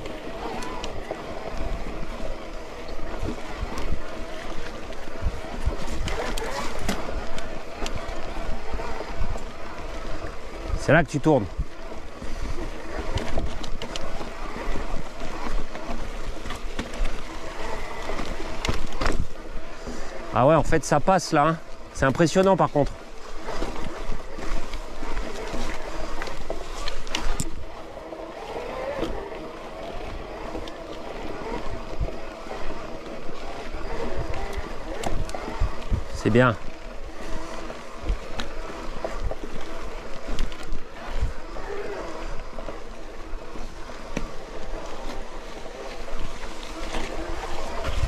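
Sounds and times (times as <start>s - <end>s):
bike tyre and wind noise: 0.0s - 48.0s
clicks and rattles over stones: 0.0s - 48.0s
wind on camera microphone: 33.8s - 38.2s.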